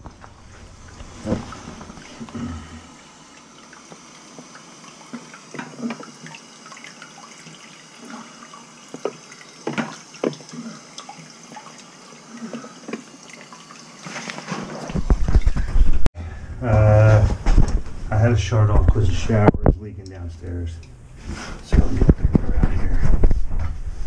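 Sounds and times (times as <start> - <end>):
water drips and splashes: 0.2 - 15.7.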